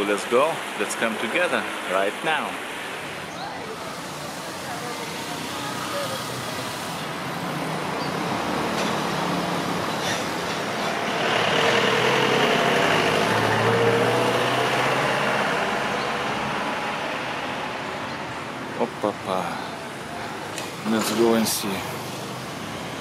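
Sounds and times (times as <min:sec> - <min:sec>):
steady background noise: 0:00.0 - 0:23.0
vehicle engine driving past: 0:07.4 - 0:17.5.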